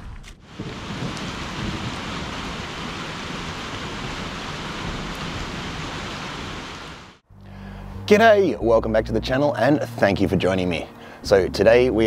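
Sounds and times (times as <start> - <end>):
rain on wet asphalt: 0.2 - 7.2.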